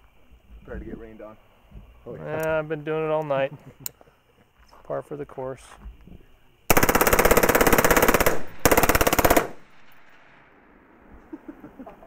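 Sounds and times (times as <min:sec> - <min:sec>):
suppressed rifle automatic fire: 0:06.7 - 0:10.6.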